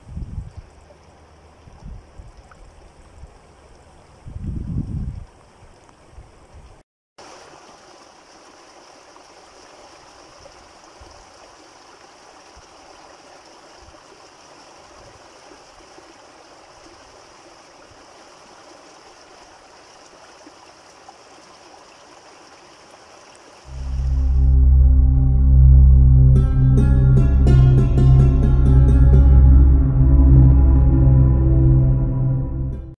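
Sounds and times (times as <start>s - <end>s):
floodwater rushing over gravel: 7.2s - 24.2s.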